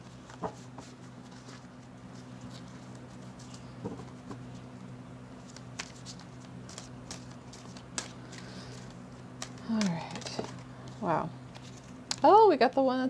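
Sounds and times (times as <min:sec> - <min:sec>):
cards being shuffled: 0:00.0 - 0:12.3.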